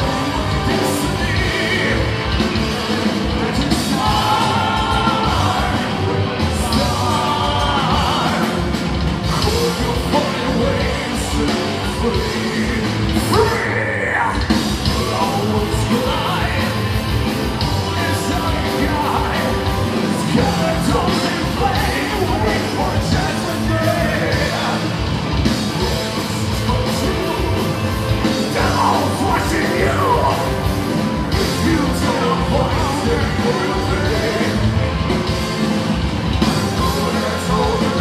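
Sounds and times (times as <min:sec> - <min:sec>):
metal band playing live: 0:00.0 - 0:38.0.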